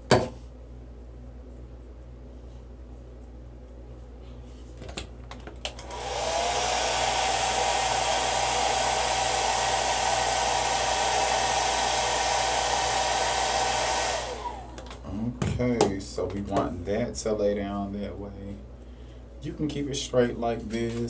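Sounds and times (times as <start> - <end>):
hair dryer blowing: 5.7 - 15.0.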